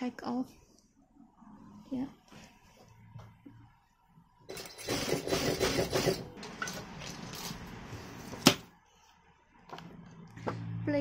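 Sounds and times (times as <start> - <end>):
sewing machine running: 4.5 - 6.3.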